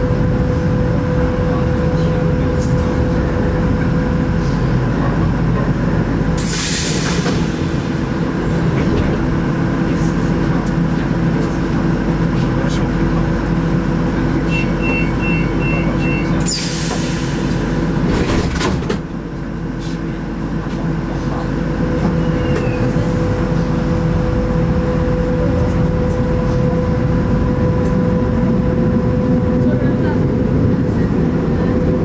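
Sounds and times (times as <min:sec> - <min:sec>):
train motor hum and whine: 0:00.0 - 0:32.0
train running rumble: 0:00.0 - 0:32.0
train doors hissing: 0:06.4 - 0:09.4, 0:15.8 - 0:19.1
two-tone beeping signal: 0:14.5 - 0:16.4.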